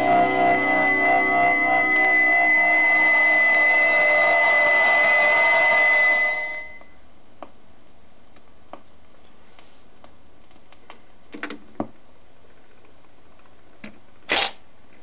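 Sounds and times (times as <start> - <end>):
song on a record player: 0.0 - 6.8.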